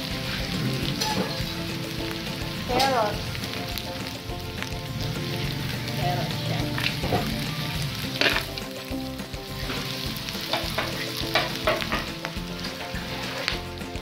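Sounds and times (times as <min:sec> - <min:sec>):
food sizzling in wok: 0:00.0 - 0:14.0.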